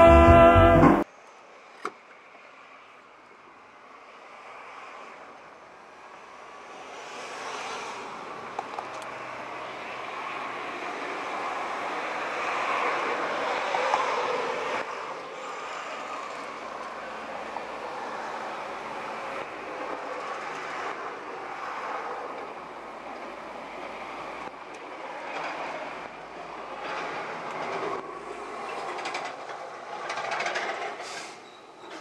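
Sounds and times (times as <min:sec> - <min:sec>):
music: 0:00.0 - 0:01.0.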